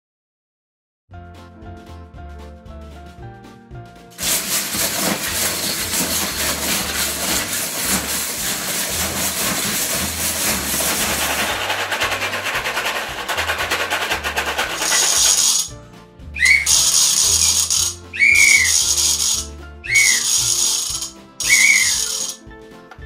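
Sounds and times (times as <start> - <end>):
background music with steady beat: 1.2 - 23.0
toy bricks rattling in plastic tub: 4.2 - 15.7, 16.4 - 22.4.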